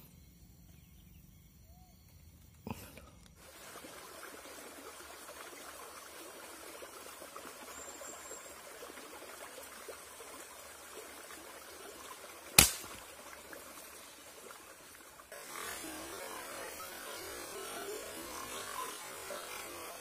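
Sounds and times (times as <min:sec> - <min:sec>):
faint outdoor hiss: 0:00.0 - 0:20.0
air rifle shot: 0:12.6 - 0:13.0.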